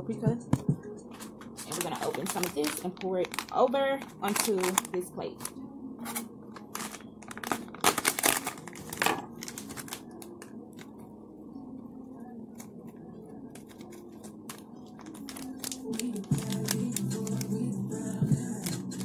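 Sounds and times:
packet tearing and crinkling: 1.6 - 5.5, 6.6 - 10.3, 13.6 - 17.5.

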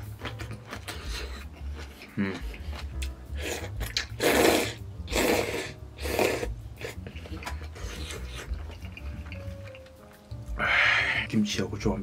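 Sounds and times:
chewing with small clicks: 0.0 - 4.2, 7.0 - 10.5
noodles slurped loudly: 3.3 - 7.0.

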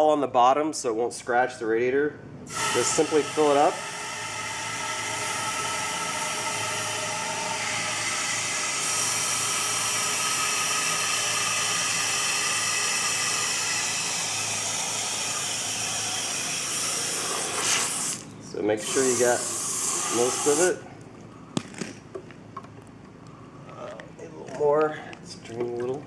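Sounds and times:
water from hose rushing into radiator: 2.5 - 18.2.

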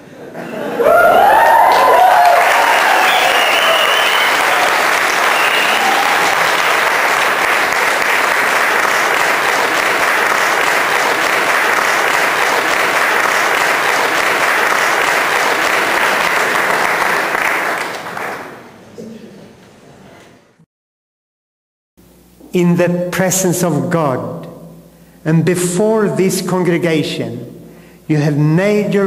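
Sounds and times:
crowd applauding: 0.8 - 18.7.

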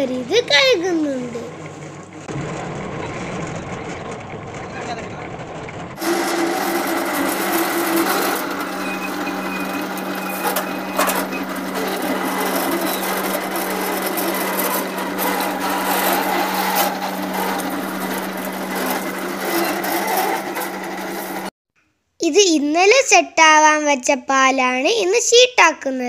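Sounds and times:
roller machine humming: 0.0 - 21.5.

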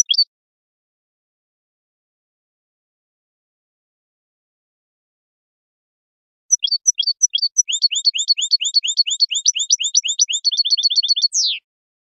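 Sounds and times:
goldfinch singing: 0.0 - 0.3, 6.5 - 11.6.

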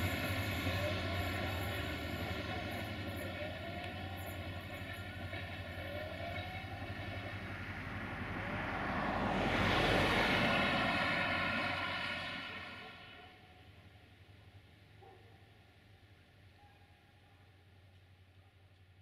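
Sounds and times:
distant engine drone: 0.0 - 14.6.

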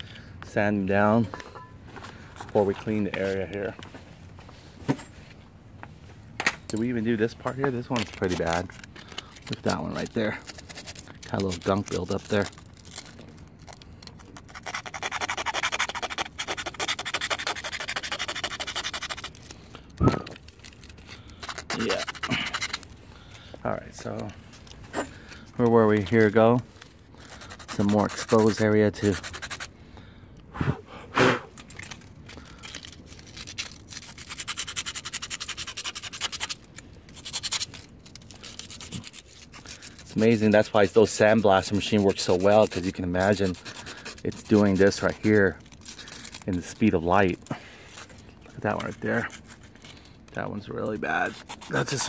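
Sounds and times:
sandpaper rubbing on metal tube: 7.9 - 19.5, 20.2 - 22.9, 25.6 - 26.6, 27.2 - 29.7, 32.6 - 52.0.

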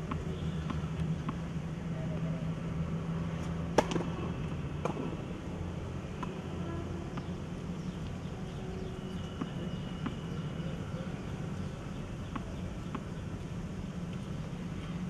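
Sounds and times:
tennis ball bouncing: 0.0 - 1.5, 3.7 - 5.2, 6.1 - 6.5, 7.1 - 7.9, 9.3 - 10.4, 12.2 - 13.2
low outdoor ambient hum: 0.0 - 15.0.

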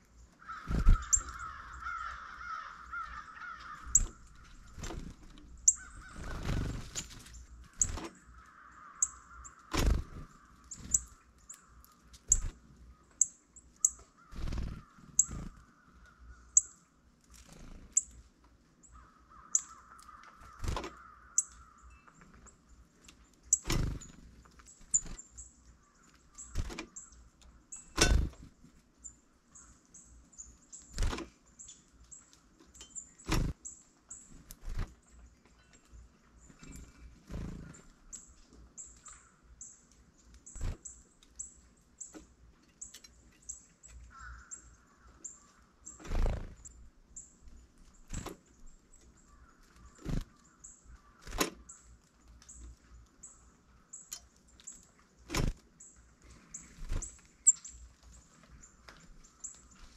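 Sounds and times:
small birds chirping: 0.0 - 59.9
crows cawing: 0.4 - 4.6, 5.7 - 6.5, 7.6 - 12.1, 13.8 - 16.6, 18.9 - 21.9, 44.1 - 45.8, 49.3 - 51.3.

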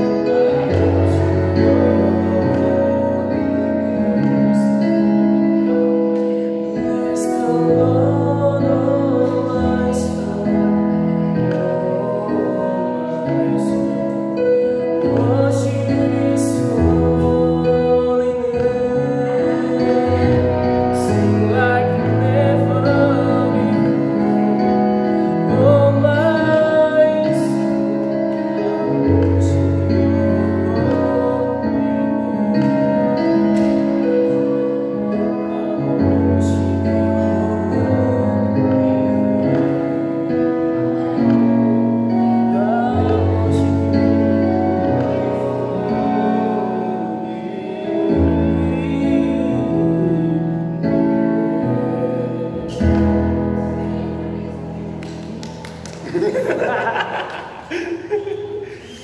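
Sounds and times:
man singing worship song: 0.0 - 55.0
keyboard chords: 0.0 - 59.0.

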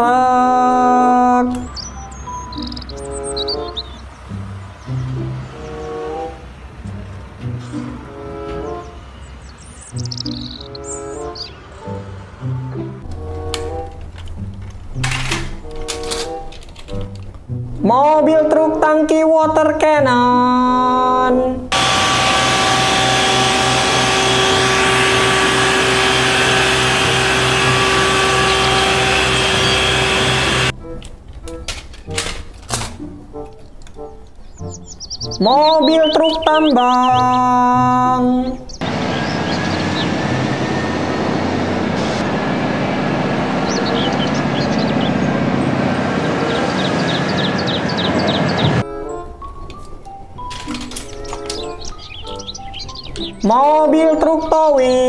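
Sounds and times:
truck engine running pump: 21.7 - 30.7, 38.8 - 48.8
water jet spraying: 21.8 - 30.7.

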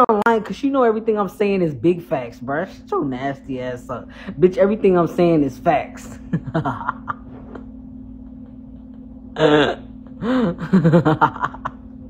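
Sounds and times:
steady low hum: 0.0 - 12.0
person making wordless vocal sounds: 9.4 - 10.0.

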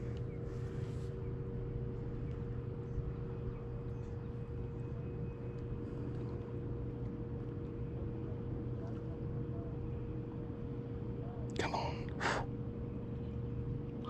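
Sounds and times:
low mechanical hum: 0.0 - 14.0
faint ticks: 0.1 - 0.3.

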